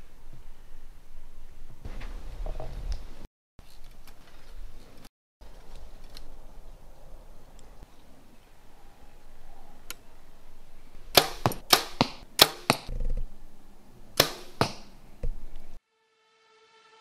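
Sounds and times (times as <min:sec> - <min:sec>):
arrows striking target: 0:11.1 - 0:12.9, 0:14.2 - 0:15.0
faint steady musical tone: 0:15.8 - 0:17.0.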